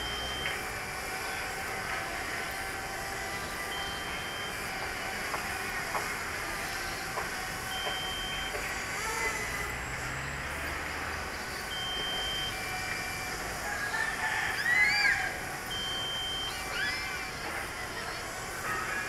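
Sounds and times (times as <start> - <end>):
outdoor background noise: 0.0 - 19.0
rooster crowing: 13.6 - 15.4.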